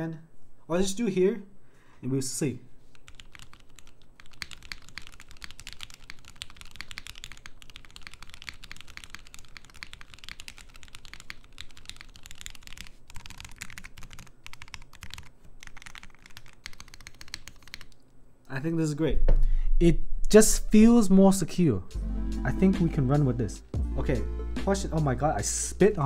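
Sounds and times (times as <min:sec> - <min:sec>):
mechanical keyboard typing: 0:02.9 - 0:18.1.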